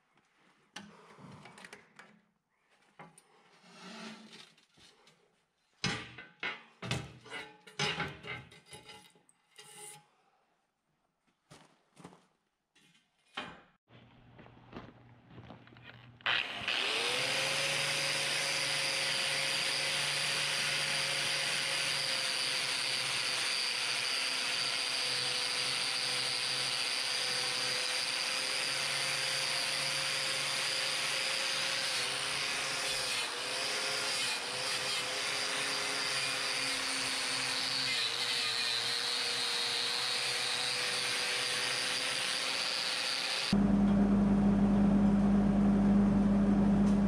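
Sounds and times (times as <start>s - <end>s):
angle grinder motor whine: 16.2s - 31.9s
grinder grinding steel: 16.2s - 43.6s.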